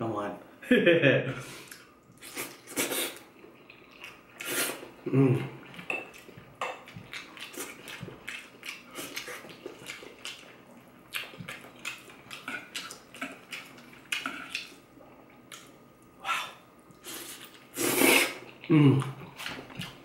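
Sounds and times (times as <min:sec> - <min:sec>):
wet chewing and lip-smacking: 0:05.7 - 0:16.2.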